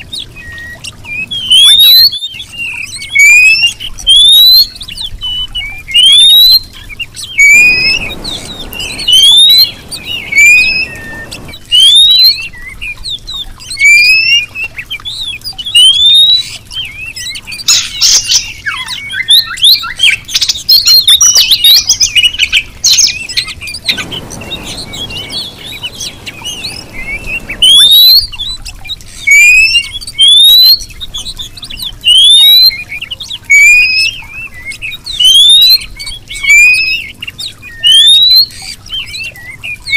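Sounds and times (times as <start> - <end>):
bird rising whistles: 5.9 - 12.8, 13.7 - 14.5, 22.9 - 30.9
bird scratchy chattering: 7.4 - 11.7, 23.9 - 28.6
faint hiss: 7.4 - 11.8, 23.8 - 29.8.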